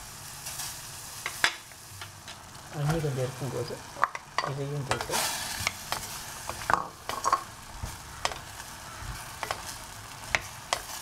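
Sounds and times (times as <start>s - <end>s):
vegetables sizzling in hot oil: 0.0s - 11.0s
spatula scraping and tapping pan: 4.0s - 8.6s, 9.2s - 11.0s.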